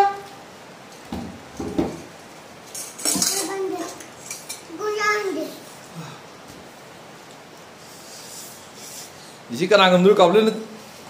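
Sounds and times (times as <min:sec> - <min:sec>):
cutlery clinking on ceramic bowls: 0:02.7 - 0:04.7.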